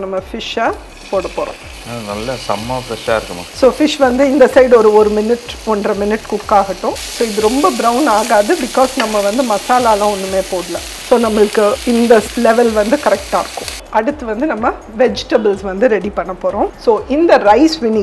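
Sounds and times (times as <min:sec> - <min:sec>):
fish sizzling in a frying pan: 0:00.9 - 0:13.8.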